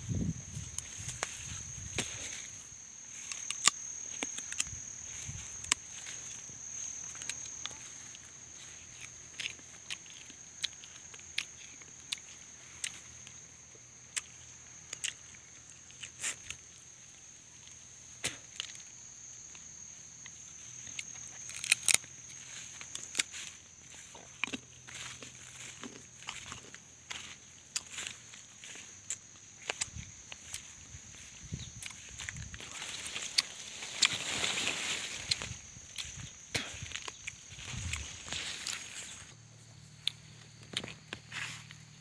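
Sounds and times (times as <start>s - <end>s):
high-pitched insect drone: 0.0s - 42.0s
footsteps through dry leaves: 30.4s - 39.4s.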